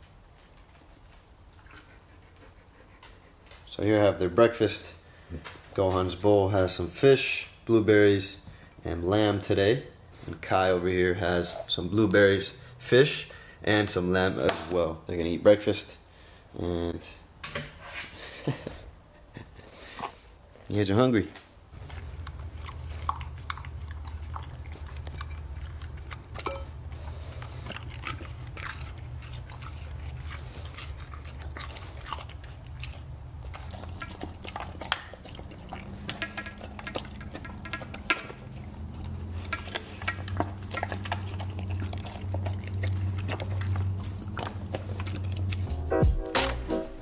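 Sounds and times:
dogs chewing wet food: 0:00.3 - 0:04.5, 0:21.7 - 0:45.9.

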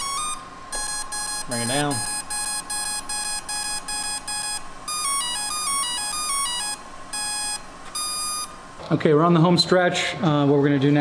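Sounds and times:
long electronic beep: 0:00.0 - 0:08.5
short electronic beeps: 0:00.0 - 0:08.6.

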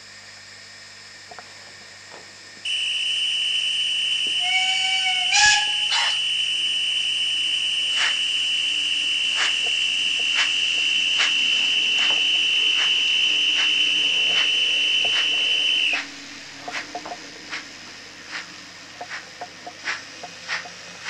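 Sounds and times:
steady high tone with soft beat: 0:07.8 - 0:21.0.

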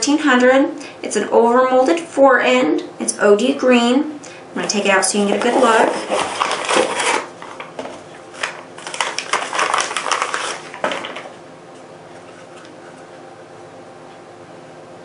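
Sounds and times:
plastic bag crinkling: 0:05.2 - 0:11.4.

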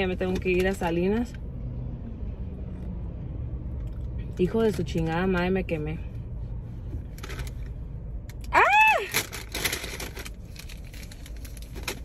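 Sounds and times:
woman yelping: 0:08.5 - 0:09.2.

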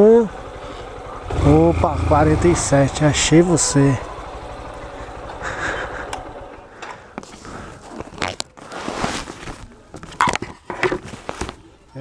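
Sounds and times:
motorcycle engine idling: 0:00.0 - 0:07.2.

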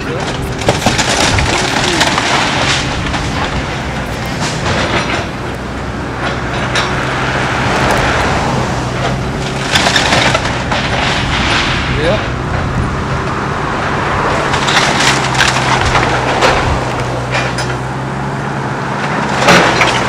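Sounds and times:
timber cracking and splintering: 0:00.0 - 0:05.6, 0:07.8 - 0:12.2, 0:14.3 - 0:17.6, 0:19.2 - 0:20.0
diesel engines rumbling: 0:00.0 - 0:20.0.

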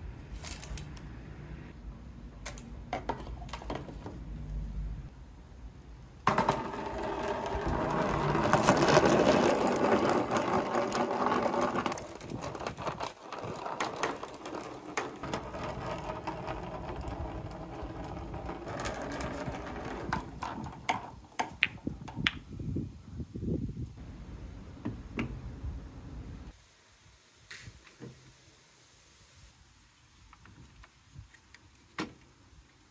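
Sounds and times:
balls rolling in plastic gutter: 0:06.2 - 0:22.4.

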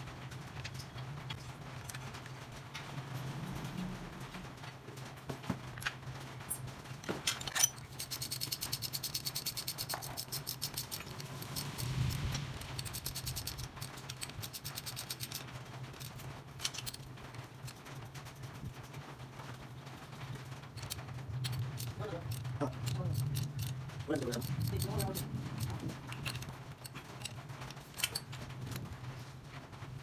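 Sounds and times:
ratchet clicking: 0:07.9 - 0:15.4, 0:20.8 - 0:27.4.

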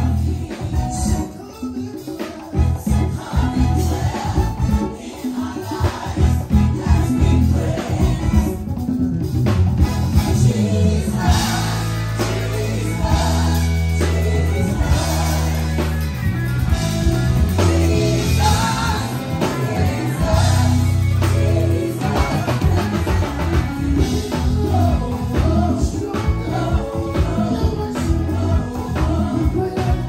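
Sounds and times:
electric bass long low notes: 0:00.0 - 0:01.3, 0:06.2 - 0:30.0
drums: 0:00.0 - 0:30.0
live band playing upbeat song: 0:00.0 - 0:30.0
singing: 0:17.5 - 0:30.0.

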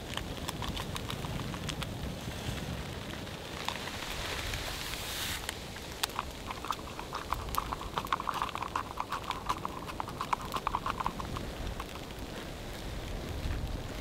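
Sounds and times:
water bubbling in metal mug: 0:05.8 - 0:12.4.

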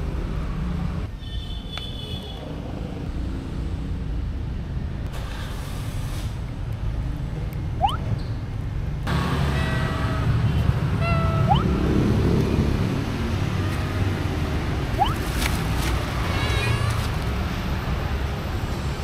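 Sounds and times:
low rumble of traffic: 0:00.0 - 0:19.0
small cat mewing: 0:09.4 - 0:11.9.

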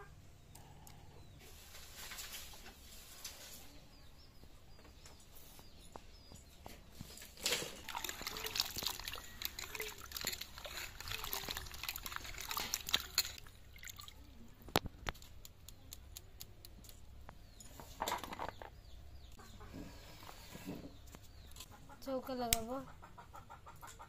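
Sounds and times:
water splashing and sloshing: 0:06.9 - 0:14.8
water dripping: 0:07.4 - 0:16.7.

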